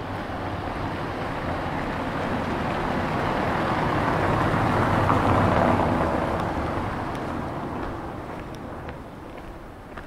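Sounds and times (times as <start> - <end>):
tyres hissing on wet street: 0.0 - 10.0.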